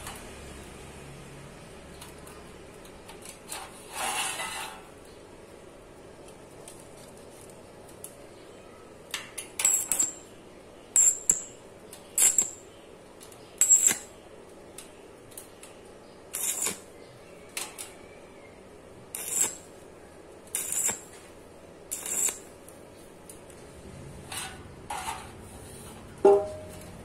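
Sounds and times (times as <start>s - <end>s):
arc welding sizzle: 9.5s - 10.3s, 10.9s - 18.0s, 19.0s - 23.6s.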